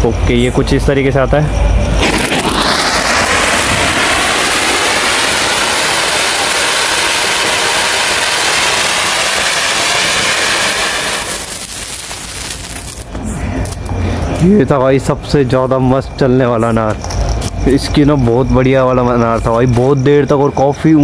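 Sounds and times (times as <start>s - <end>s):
fountain firework hissing: 2.0s - 13.2s.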